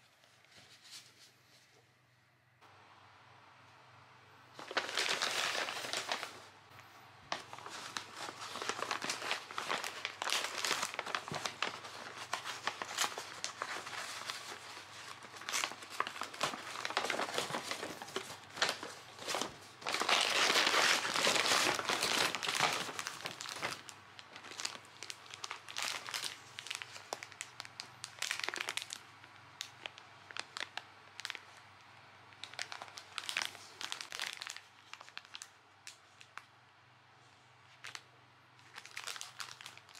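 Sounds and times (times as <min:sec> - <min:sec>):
paper bag rustling: 0:04.6 - 0:06.6, 0:07.3 - 0:29.0
plastic-wrapped packets crinkling: 0:04.6 - 0:06.6, 0:07.3 - 0:31.6, 0:32.3 - 0:36.5, 0:37.7 - 0:39.9.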